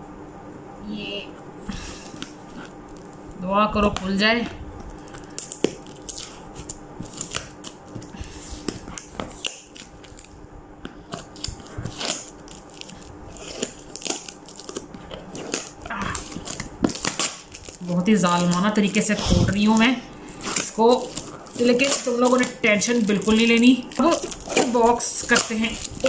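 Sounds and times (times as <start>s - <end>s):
plastic tape peeling off cardboard: 11.2s - 19.1s, 20.4s - 26.0s.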